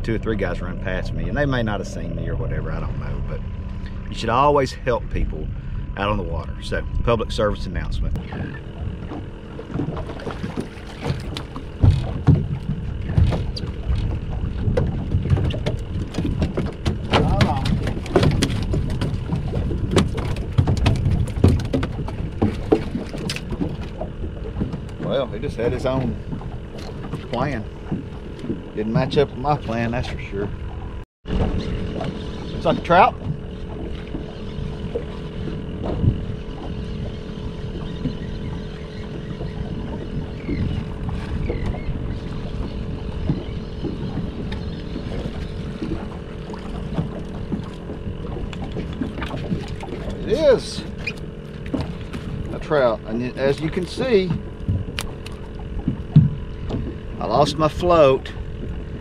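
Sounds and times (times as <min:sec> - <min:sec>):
steady hum: 0:00.0 - 0:59.0
wind rumbling on microphone: 0:00.0 - 0:59.0
water splashing against boat hull: 0:06.0 - 0:59.0
sharp ticks: 0:51.0 - 0:57.4.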